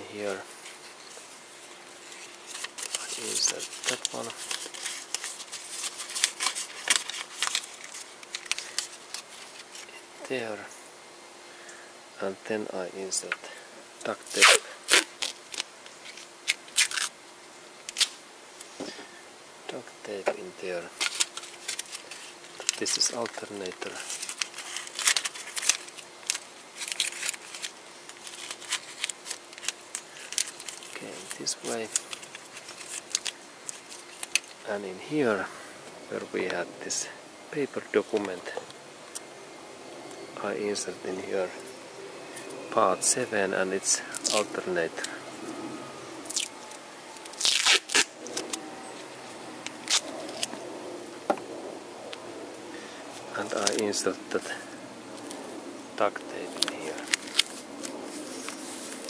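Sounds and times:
duct tape crinkling: 0:00.2 - 0:10.0, 0:14.0 - 0:17.2, 0:17.8 - 0:18.9, 0:19.7 - 0:35.4, 0:42.3 - 0:45.6, 0:46.2 - 0:52.2, 0:53.1 - 0:59.0.

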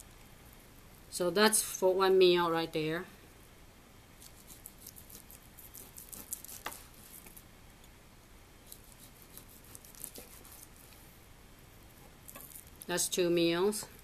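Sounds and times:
knife slicing meat on board: 0:04.2 - 0:07.3, 0:08.7 - 0:10.7.

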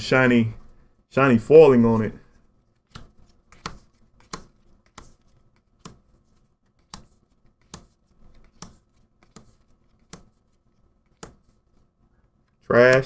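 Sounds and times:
cards flicking: 0:02.8 - 0:10.4, 0:11.0 - 0:11.6.

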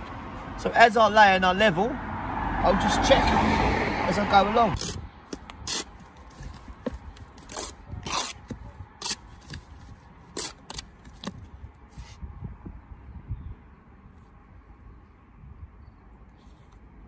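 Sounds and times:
trowel scraping mortar: 0:05.6 - 0:06.7, 0:07.4 - 0:09.7, 0:10.3 - 0:10.9.

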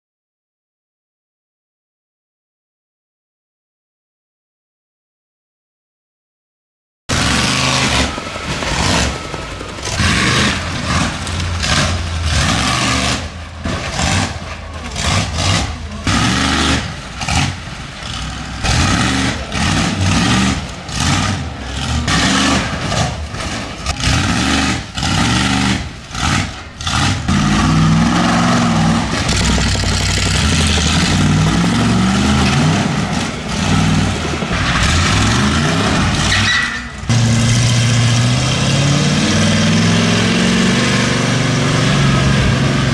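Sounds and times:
monster truck engines revving: 0:07.1 - 0:42.9.

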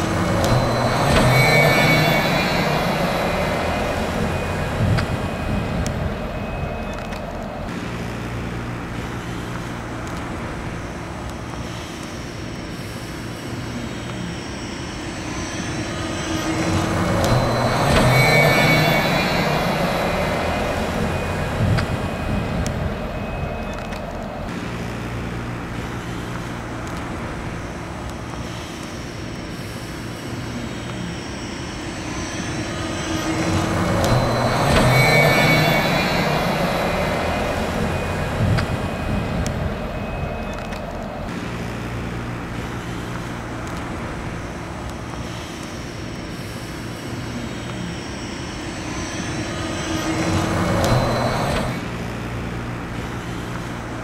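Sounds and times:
buses driving past: 0:00.0 - 0:54.0.

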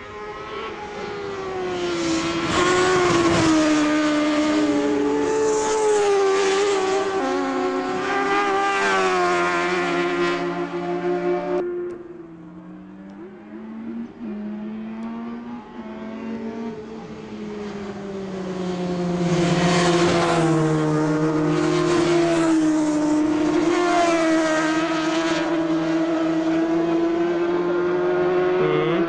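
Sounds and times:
racing motorcycles at high revs: 0:13.0 - 0:29.0.

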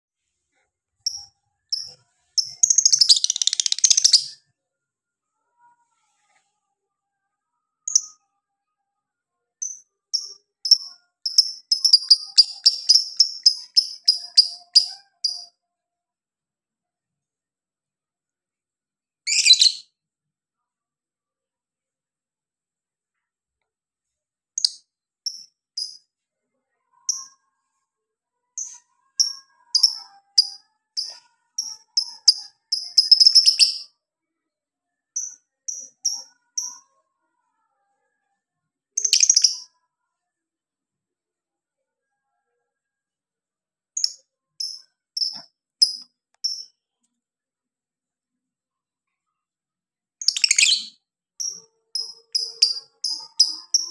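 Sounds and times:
lovebird shrill chirps: 0:01.1 - 0:04.4, 0:10.2 - 0:15.5, 0:28.6 - 0:33.8, 0:50.2 - 0:53.9.

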